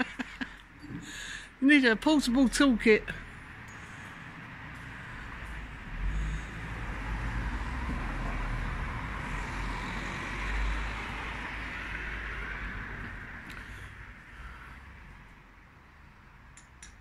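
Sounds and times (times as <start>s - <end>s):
vehicle driving past: 3.0s - 16.2s.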